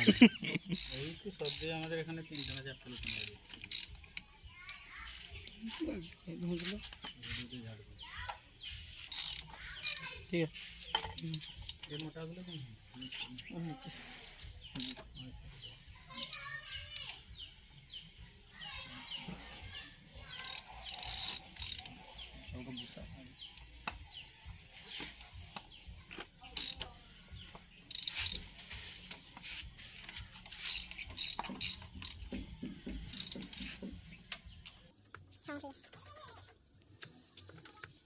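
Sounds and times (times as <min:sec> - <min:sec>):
ratchet wrench clicking: 0:00.0 - 0:04.2, 0:09.0 - 0:10.1, 0:14.7 - 0:15.1, 0:20.2 - 0:22.3, 0:26.1 - 0:27.0, 0:27.9 - 0:28.6, 0:30.0 - 0:33.9.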